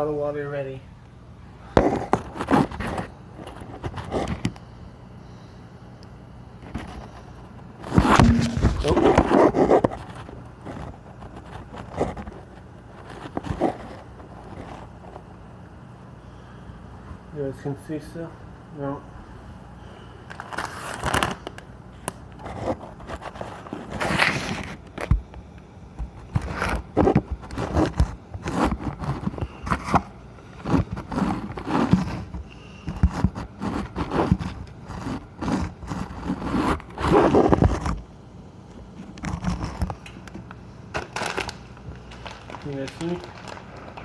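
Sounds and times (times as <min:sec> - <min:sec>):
plastic packet crinkling: 0:40.9 - 0:44.0.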